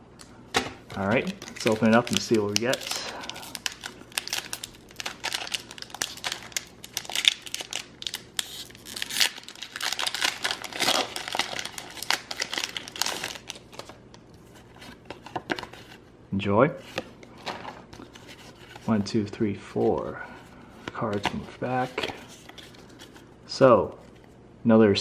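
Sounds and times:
plastic foil wrapper crinkling: 0:00.9 - 0:14.0.

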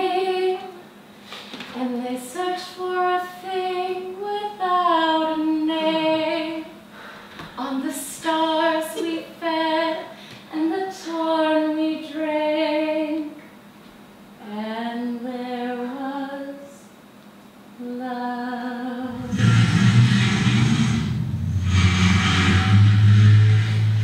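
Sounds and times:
woman singing unaccompanied: 0:00.0 - 0:00.8, 0:01.7 - 0:06.8, 0:07.6 - 0:13.4, 0:14.4 - 0:16.9, 0:17.8 - 0:19.3.

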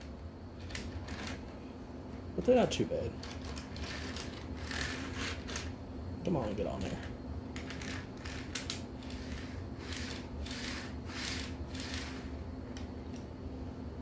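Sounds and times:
plastic wheels clicking on rails: 0:03.2 - 0:05.7, 0:07.6 - 0:12.3
toy freight car rolling on track: 0:03.2 - 0:05.7, 0:07.6 - 0:12.3.

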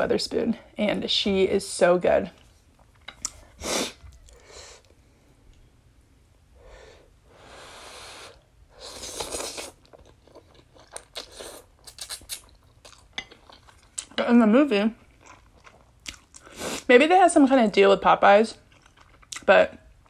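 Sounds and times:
wet chewing: 0:09.0 - 0:14.2, 0:15.0 - 0:16.6, 0:18.6 - 0:19.5
mouth clicks and smacks: 0:11.0 - 0:12.7.

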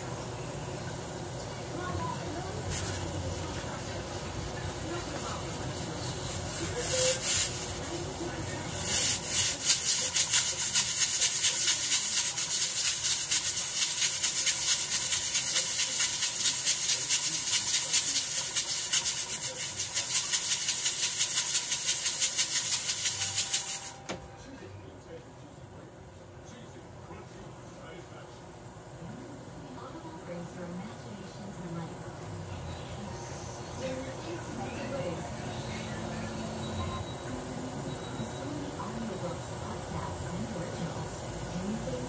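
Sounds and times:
rhythmic harsh scraping strokes: 0:05.0 - 0:24.0.

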